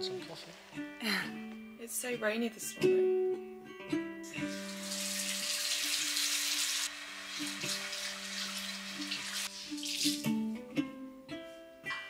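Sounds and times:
plucked-string music: 0.0s - 12.0s
running water hiss: 4.5s - 10.4s.

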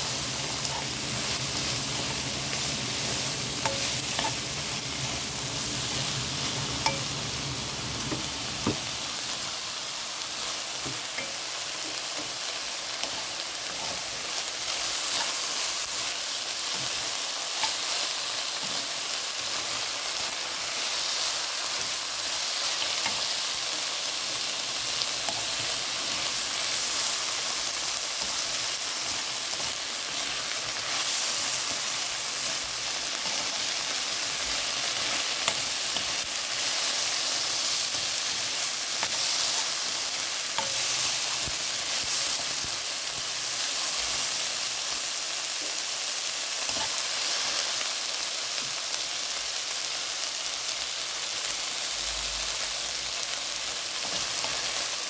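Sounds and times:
food sizzling in a pan: 0.0s - 55.0s
spatula scraping a pan: 0.4s - 5.2s.

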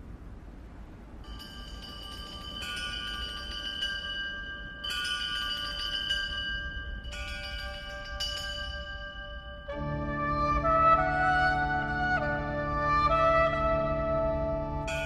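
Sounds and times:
bell-like chime tones: 1.2s - 9.7s.

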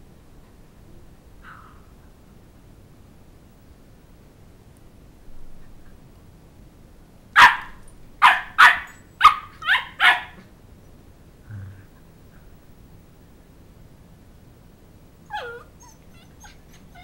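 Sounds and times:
puppy barking: 7.4s - 10.5s.

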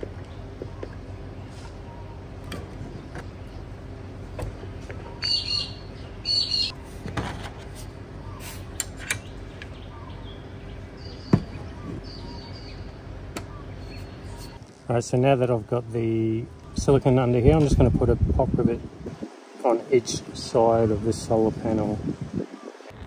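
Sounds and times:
birds calling: 0.0s - 7.0s, 7.8s - 14.6s, 16.0s - 17.6s, 22.3s - 23.0s.

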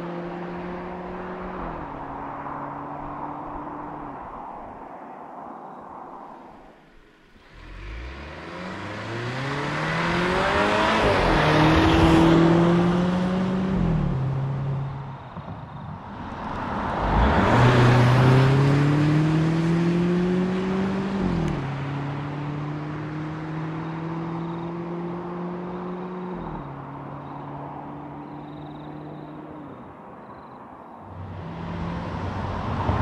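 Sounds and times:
car engine accelerating: 7.4s - 29.6s, 31.1s - 33.0s.

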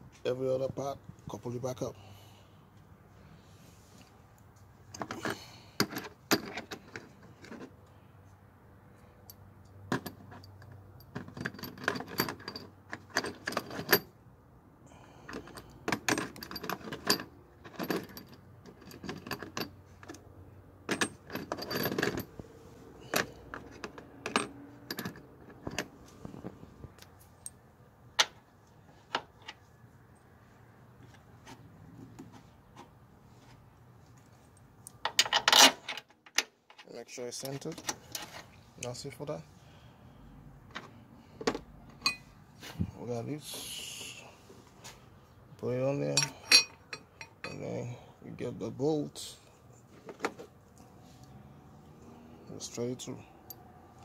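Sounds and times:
tools clinking against metal: 41.9s - 42.3s, 46.0s - 47.8s.

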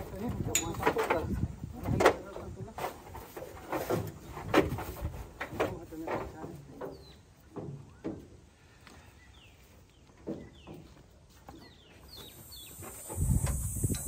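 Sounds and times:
bird chirping: 9.0s - 14.0s
high insect buzz: 12.4s - 14.0s.

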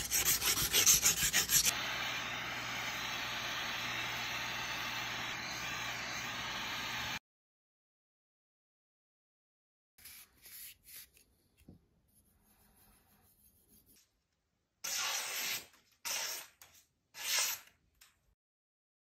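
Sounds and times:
knife slicing through paper: 14.8s - 17.7s.

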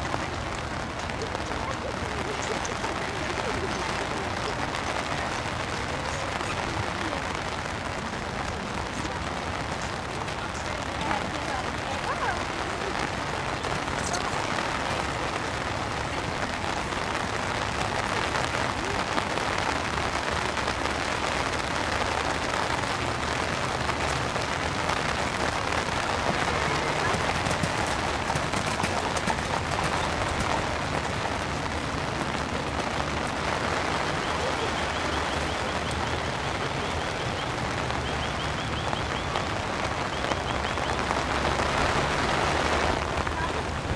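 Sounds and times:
heavy rain falling: 0.0s - 43.9s.

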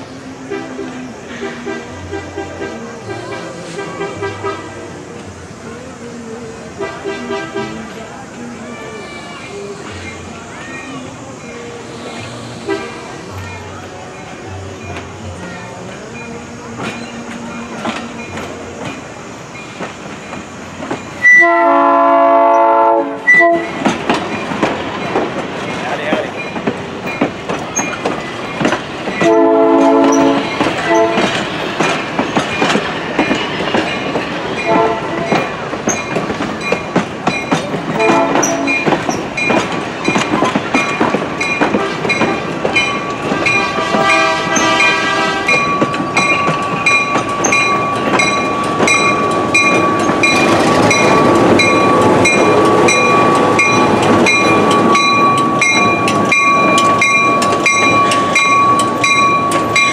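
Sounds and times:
train running: 0.0s - 59.9s
train horn blasts: 0.5s - 4.8s, 6.8s - 8.0s, 12.6s - 13.2s, 21.2s - 23.8s, 29.2s - 31.4s, 34.6s - 35.4s, 37.9s - 38.9s, 43.2s - 45.9s
locomotive bell ringing: 32.3s - 59.9s.

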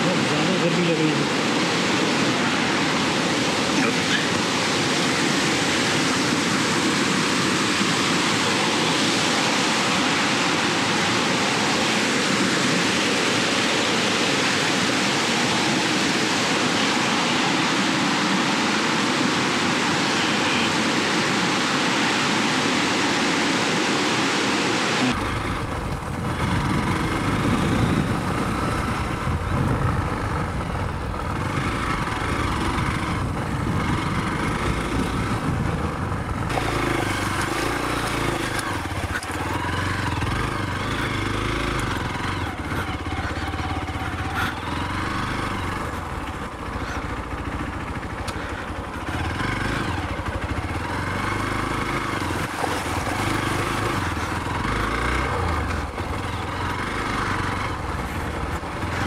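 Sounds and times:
mountain stream rushing: 0.0s - 59.0s
motorcycle engine rumbling: 25.0s - 59.0s.

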